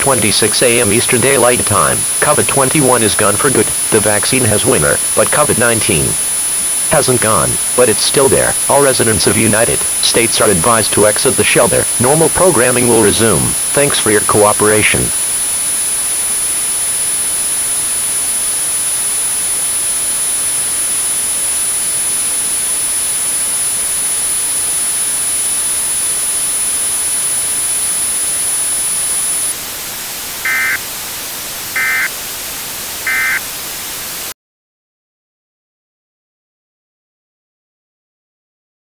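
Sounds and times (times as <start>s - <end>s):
thin high whine: 0.0s - 34.3s
static hiss: 0.0s - 34.4s
short data chirps: 30.4s - 30.8s, 31.7s - 32.1s, 33.0s - 33.4s.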